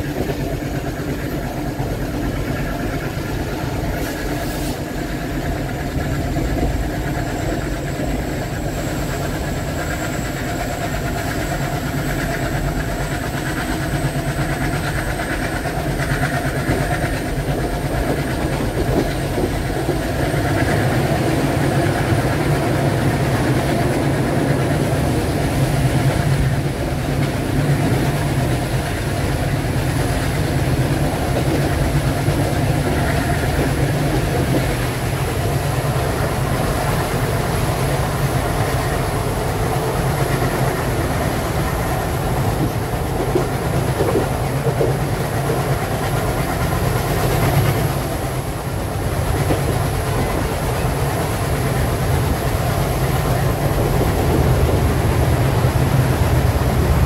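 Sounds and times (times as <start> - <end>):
diesel locomotive engines chugging: 0.0 - 57.0
steady high whine: 0.0 - 57.0
wheel and rail noise: 0.0 - 57.0.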